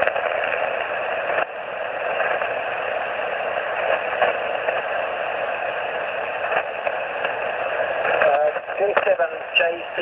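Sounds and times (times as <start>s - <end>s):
shortwave radio static hiss: 0.0s - 10.0s.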